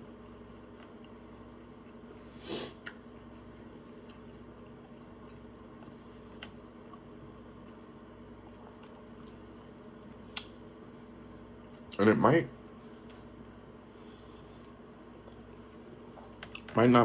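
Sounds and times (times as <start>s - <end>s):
man chewing: 0.0s - 10.6s
steady low hum: 0.0s - 17.0s.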